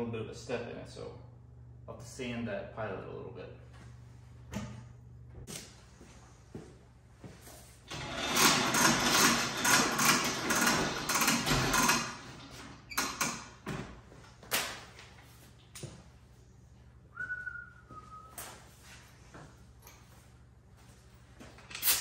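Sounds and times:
loud rattling: 7.9 - 12.8
short whistling tone: 17.1 - 18.6.

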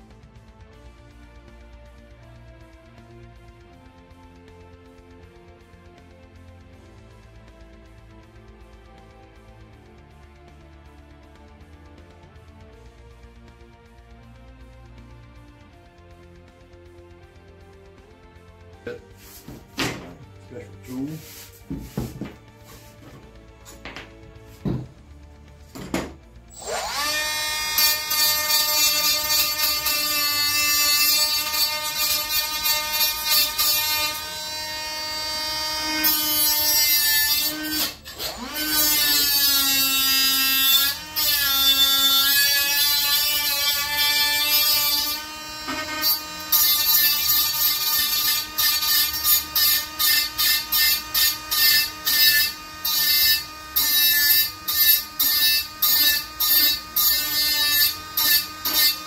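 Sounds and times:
cordless drill whining: 25.8 - 36.7, 40.3 - 59.0.

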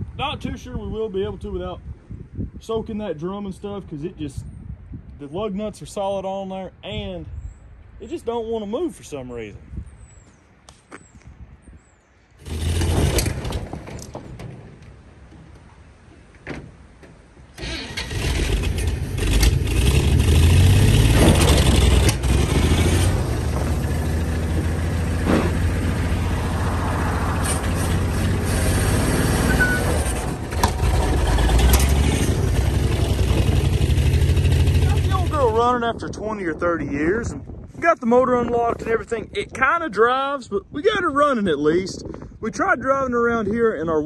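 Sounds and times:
truck engine starting and revving: 12.4 - 14.2, 17.5 - 35.8.

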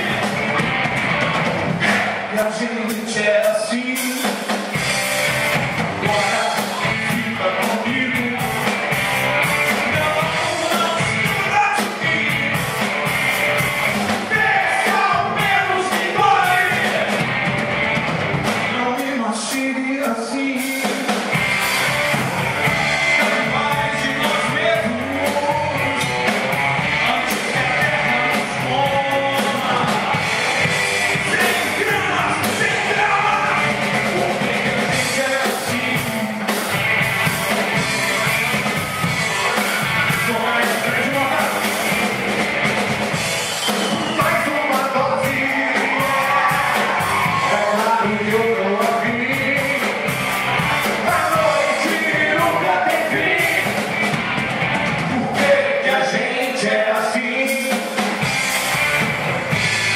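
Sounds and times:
drums: 0.0 - 59.9
rock band playing: 0.0 - 59.9
person singing: 6.0 - 8.9, 9.5 - 12.8, 14.2 - 17.2, 22.9 - 30.5, 31.1 - 36.7, 39.2 - 42.1, 43.9 - 53.9.

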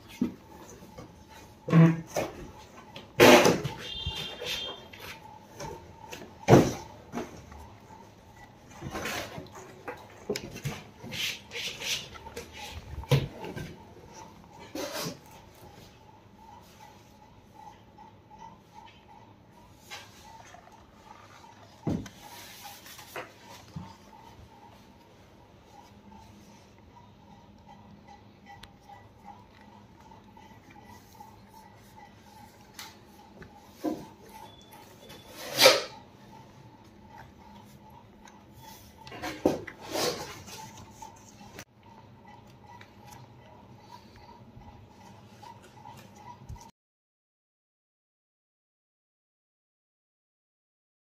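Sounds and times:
rubbing scrape: 11.0 - 13.2.

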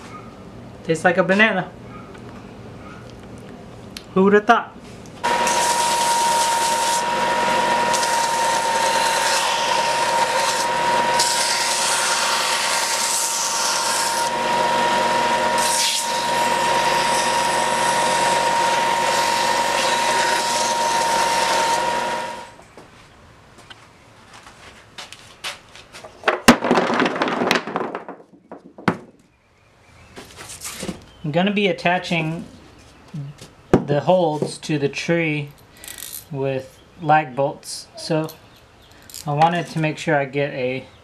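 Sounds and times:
wood block being sanded: 5.2 - 22.5
belt sander whining: 5.2 - 22.6.

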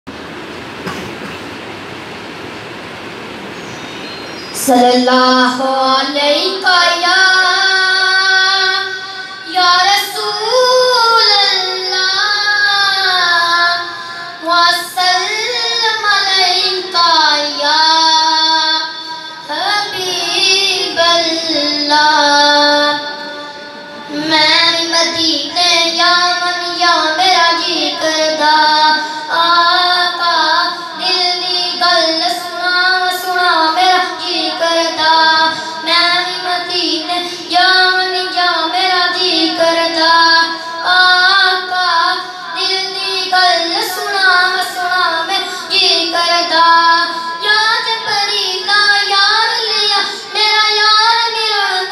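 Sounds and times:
boy singing unaccompanied: 4.5 - 51.9.

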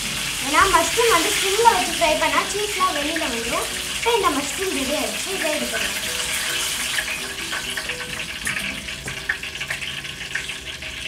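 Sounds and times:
hot oil sizzling and crackling: 0.0 - 11.0.

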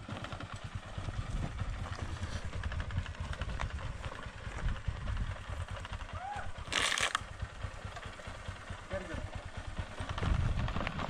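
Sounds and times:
motorcycle engine chugging: 0.0 - 11.0
stones knocking under tyres: 6.6 - 7.3.

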